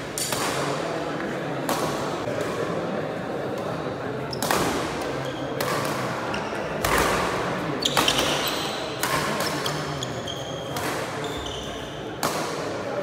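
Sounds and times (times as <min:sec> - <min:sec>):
shoes squeaking on court floor: 0:07.8 - 0:12.1.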